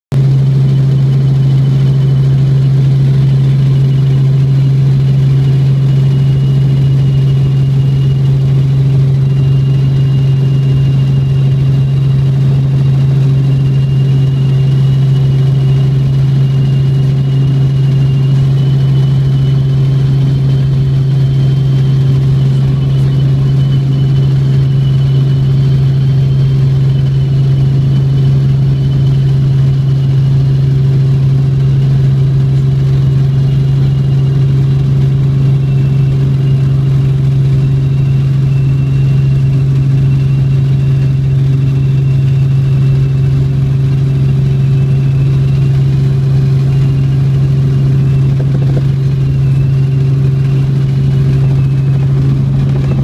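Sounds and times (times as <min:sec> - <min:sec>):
helicopter drone with whine: 0:00.1 - 0:53.0.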